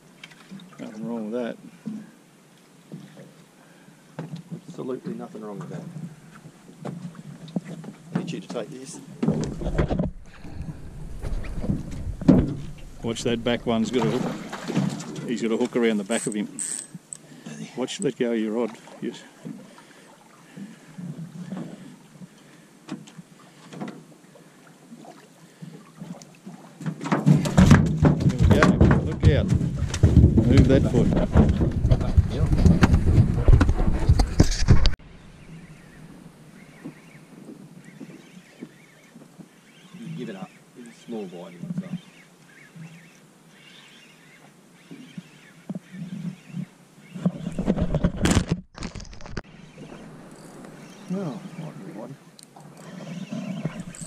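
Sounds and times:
water splashing against boat: 4.4s - 17.1s
camera handling rubbing and knocking: 29.5s - 35.0s, 47.2s - 49.5s.

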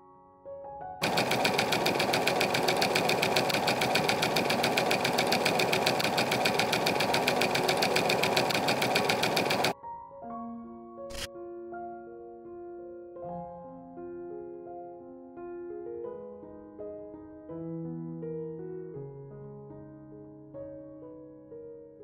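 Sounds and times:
sewing machine stitching: 1.0s - 9.8s.

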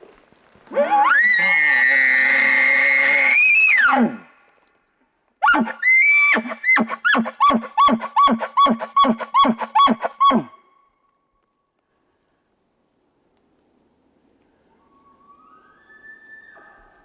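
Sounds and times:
elk call squeal and chuckles: 5.4s - 10.6s.

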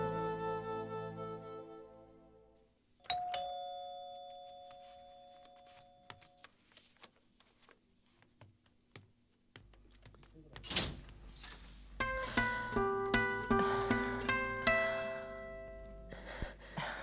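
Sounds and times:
background music: 0.0s - 2.6s, 12.0s - 16.3s
doorbell ding-dong: 3.0s - 6.1s.

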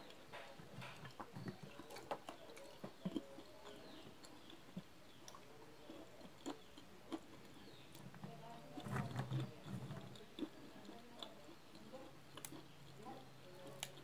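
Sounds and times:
chewing: 0.0s - 14.0s
peanut shells cracking: 9.3s - 14.0s.

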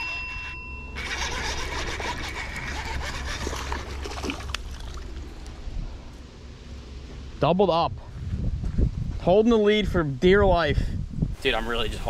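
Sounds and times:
fishing reel whirring and clicking: 0.0s - 4.0s
water splashing: 1.8s - 5.6s.

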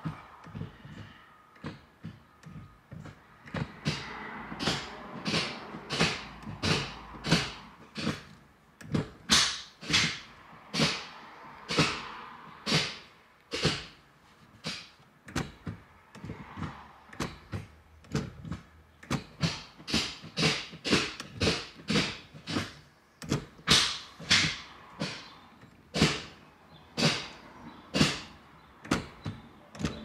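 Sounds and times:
gear lever clicking into gears: 27.0s - 30.0s.

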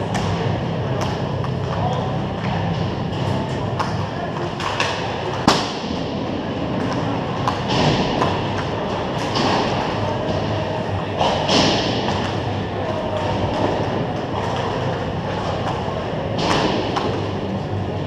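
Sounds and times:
low rink rumble: 0.0s - 18.0s
sticks and pucks clacking: 0.0s - 18.0s.

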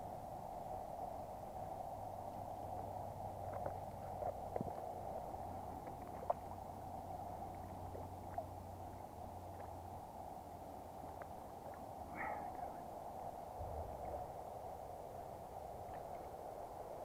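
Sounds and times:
soft clicks and splashes: 2.2s - 14.4s, 15.6s - 17.0s.

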